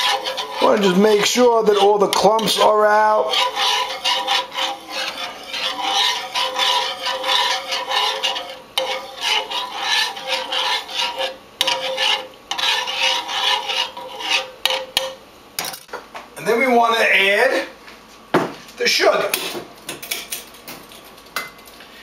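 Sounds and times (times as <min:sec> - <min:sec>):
whisk scraping metal pan: 0:00.0 - 0:15.2.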